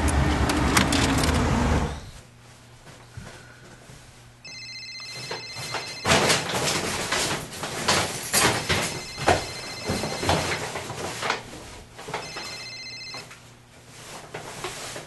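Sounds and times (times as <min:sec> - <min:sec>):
telephone ringing with electronic trill: 0:04.4 - 0:06.5, 0:08.6 - 0:10.6, 0:12.2 - 0:13.3.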